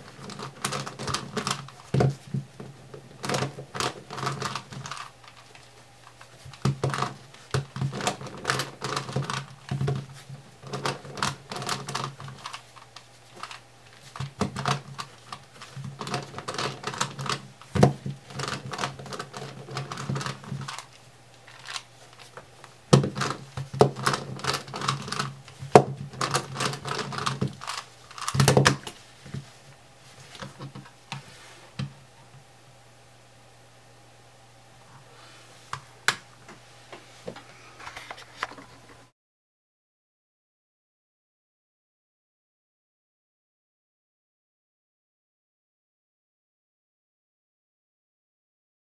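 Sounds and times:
plastic puzzle cube clicking: 0:21.5 - 0:22.3, 0:22.9 - 0:29.0.

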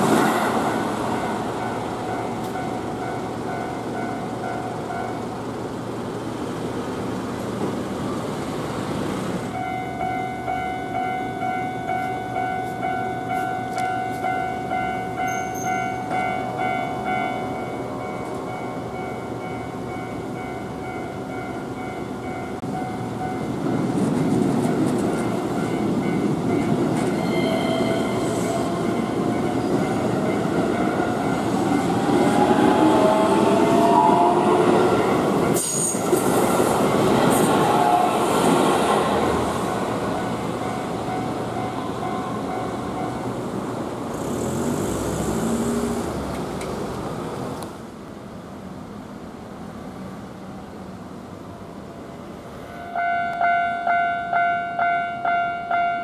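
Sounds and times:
crossing warning bell: 0:00.0 - 0:05.5, 0:09.5 - 0:38.2, 0:38.9 - 0:43.7, 0:52.6 - 0:56.0
train wheels rumbling on rails: 0:00.0 - 0:48.0
train whining tones: 0:09.4 - 0:46.7
road vehicle pulling away: 0:43.9 - 0:47.6.

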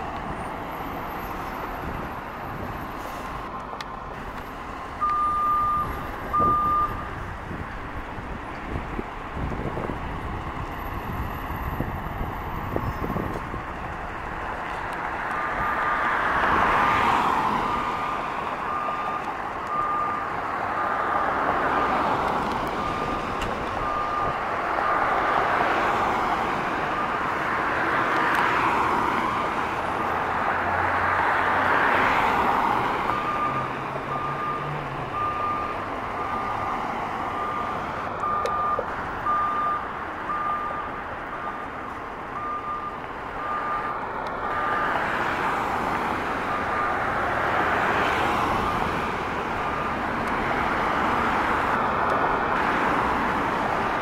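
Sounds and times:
reversing alarm beeps: 0:05.0 - 0:07.0, 0:18.6 - 0:21.0, 0:23.8 - 0:25.0, 0:33.1 - 0:36.7, 0:37.3 - 0:41.7, 0:42.4 - 0:44.0, 0:46.5 - 0:47.0.

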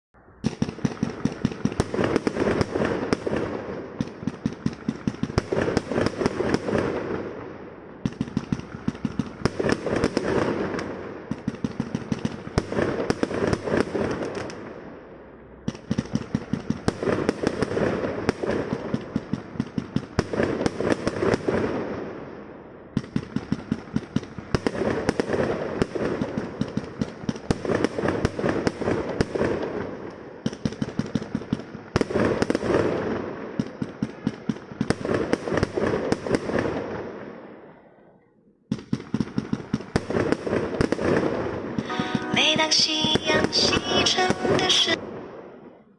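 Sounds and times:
firecrackers popping: 0:00.4 - 0:07.4, 0:08.1 - 0:14.7, 0:38.7 - 0:45.4.

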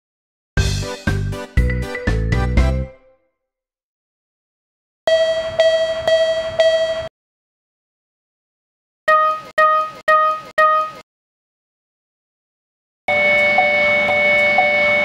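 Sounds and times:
higher crossing alarm ring: 0:05.1 - 0:07.1, 0:13.1 - 0:15.0
level-crossing alarm bell: 0:05.1 - 0:07.1, 0:13.1 - 0:15.0.

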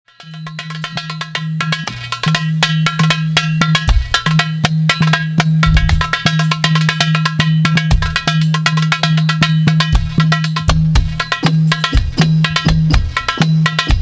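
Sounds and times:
hand drum and block strikes: 0:00.1 - 0:14.0
deep drum booms: 0:05.5 - 0:06.4.

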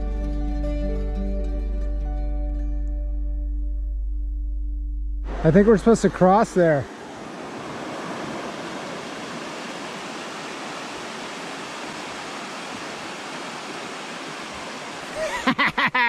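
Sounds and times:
river rapids rushing over rocks: 0:06.8 - 0:15.5.

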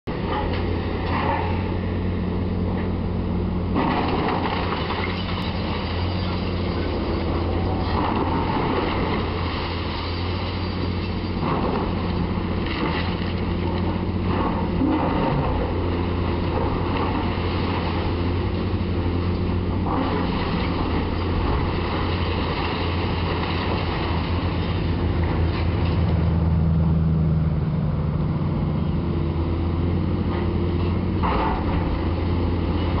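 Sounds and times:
excavator diesel engine running: 0:00.1 - 0:33.0
masonry crunching and crashing: 0:03.7 - 0:26.0.

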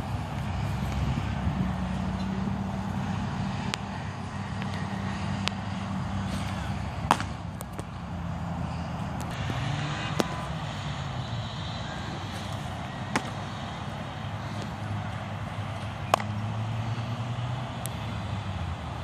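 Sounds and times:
low mechanical hum: 0:00.0 - 0:19.0
ball popping into catcher's mitt: 0:07.1 - 0:07.9, 0:16.1 - 0:16.4.

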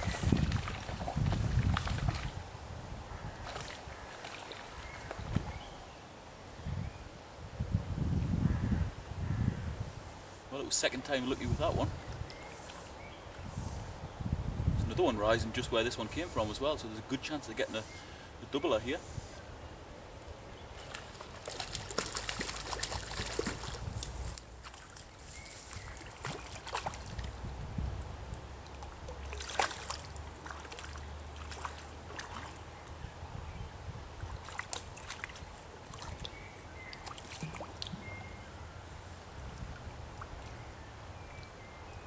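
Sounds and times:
water splashing and sloshing: 0:00.0 - 0:02.5, 0:03.2 - 0:05.6, 0:20.7 - 0:27.5, 0:28.6 - 0:33.0, 0:34.2 - 0:38.2.

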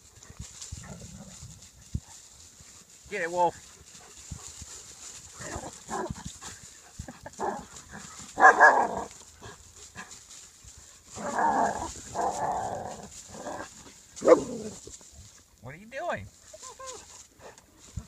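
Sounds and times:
claws scratching on bark: 0:00.0 - 0:15.4
dog barking and growling: 0:05.4 - 0:10.0, 0:11.1 - 0:14.9.

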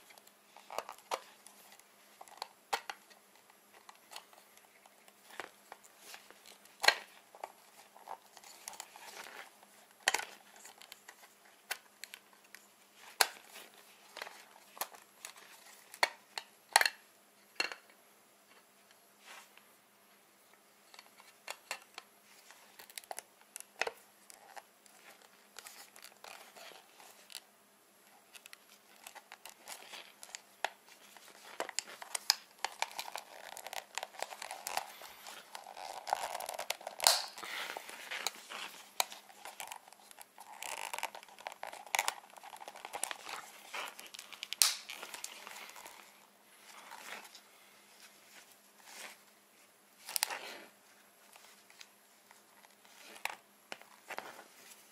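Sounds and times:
plastic scraping and crinkling: 0:00.0 - 0:17.0, 0:28.0 - 0:49.3, 0:50.0 - 0:54.9.

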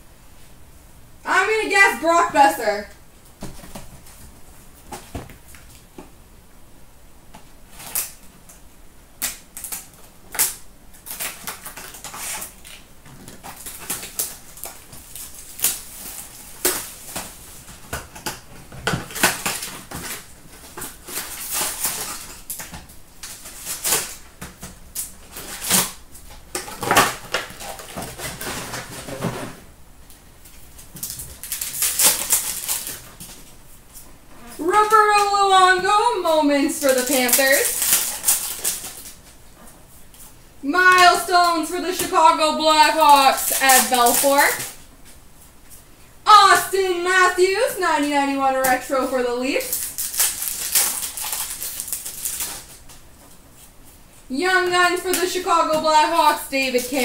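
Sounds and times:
foil wrappers crinkling: 0:09.2 - 0:29.4, 0:30.1 - 0:45.1, 0:48.6 - 0:57.0.

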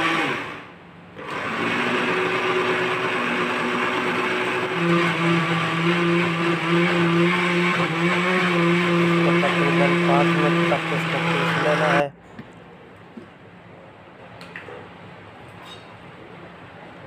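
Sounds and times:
blender motor grinding: 0:00.0 - 0:12.1.

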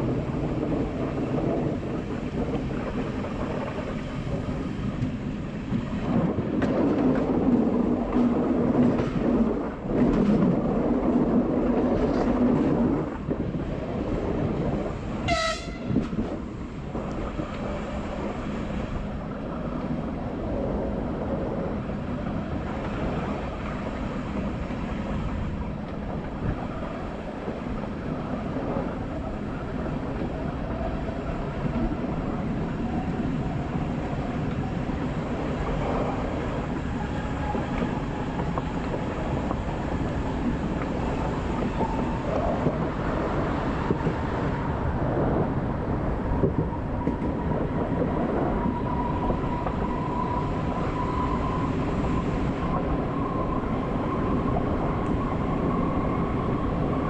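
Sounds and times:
train rolling and traction noise: 0:00.0 - 0:57.0
train horn blast: 0:15.2 - 0:16.2.

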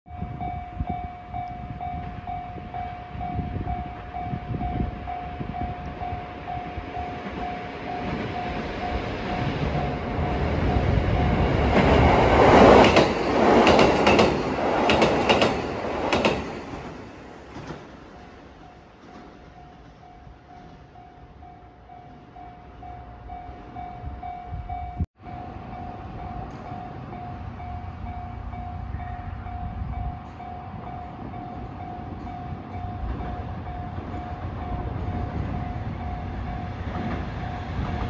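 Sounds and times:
train passing: 0:00.1 - 0:38.0
wheels clacking over rail joints: 0:07.0 - 0:20.8.

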